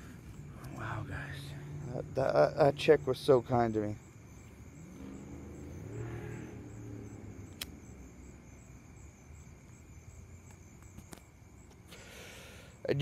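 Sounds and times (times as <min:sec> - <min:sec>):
car passing: 0:00.2 - 0:09.4.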